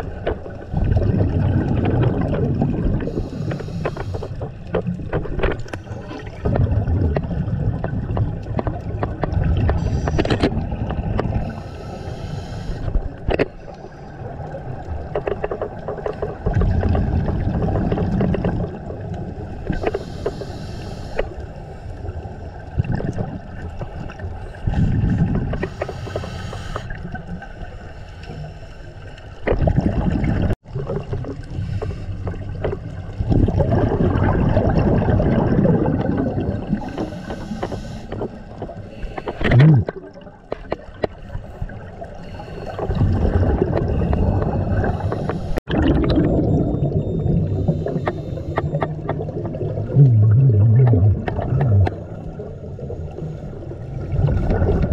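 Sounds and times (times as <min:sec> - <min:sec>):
exhaled bubbles rumbling: 0:00.0 - 0:11.8, 0:14.1 - 0:19.8, 0:22.1 - 0:25.7, 0:29.4 - 0:37.5, 0:38.2 - 0:54.9
regulator inhale hiss: 0:03.1 - 0:04.4, 0:11.4 - 0:14.1, 0:19.7 - 0:22.0, 0:25.6 - 0:27.0, 0:36.8 - 0:39.4, 0:42.1 - 0:42.9, 0:44.0 - 0:45.6, 0:47.6 - 0:48.7.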